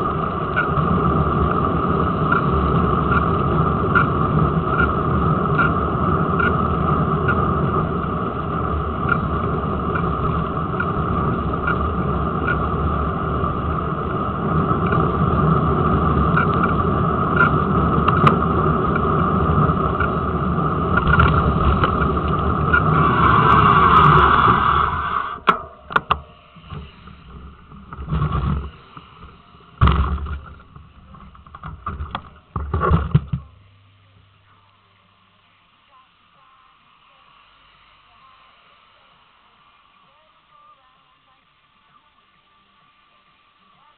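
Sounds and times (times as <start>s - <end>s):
light regular ticking: 0.0s - 24.2s
wind and tyre rumble: 0.0s - 33.6s
steady whine: 0.0s - 43.9s
knocks and thumps of bike handled: 29.8s - 33.5s.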